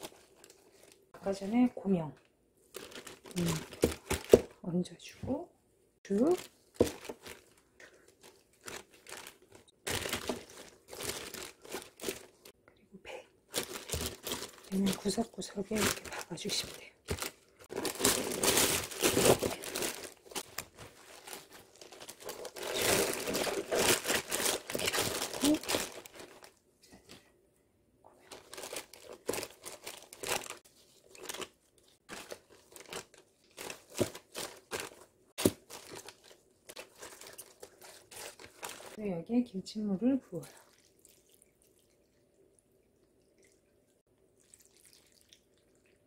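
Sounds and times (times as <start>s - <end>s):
plastic bag and gloves crinkling: 0.0s - 4.8s, 6.1s - 12.6s, 13.5s - 27.2s, 28.2s - 39.1s.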